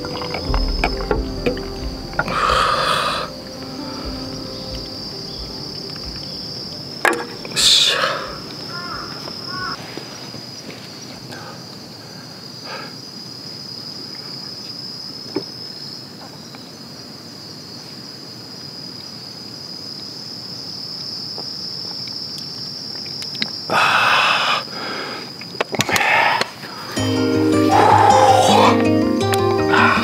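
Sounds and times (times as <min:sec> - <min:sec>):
insects chirring: 0:00.0 - 0:30.0
loud breathy exhale: 0:02.3 - 0:04.1, 0:23.7 - 0:27.0, 0:29.7 - 0:30.0
person exclaiming: 0:27.6 - 0:28.9.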